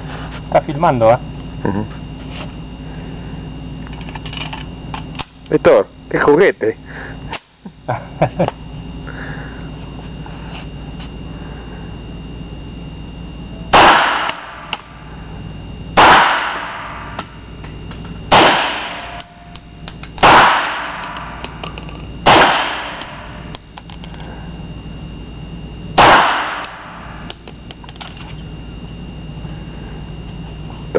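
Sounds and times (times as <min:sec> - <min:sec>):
pistol shots echoing indoors: 0:13.7 - 0:14.5, 0:16.0 - 0:17.2, 0:18.3 - 0:19.2, 0:20.2 - 0:21.2, 0:22.2 - 0:23.2, 0:26.0 - 0:26.9.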